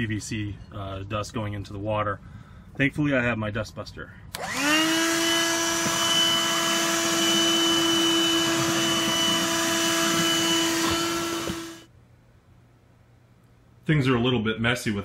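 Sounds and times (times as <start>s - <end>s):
handheld vacuum running: 4.4s - 11.9s.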